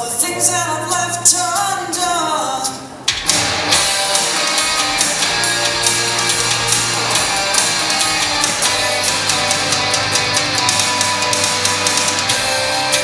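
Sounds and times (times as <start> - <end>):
band music with drum beat: 3.1 - 13.0.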